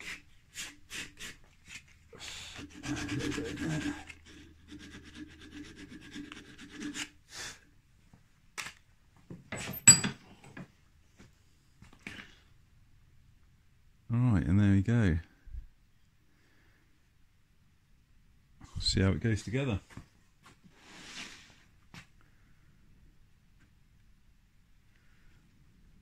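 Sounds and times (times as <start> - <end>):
sandpaper rubbing on wood: 0.0 - 7.2.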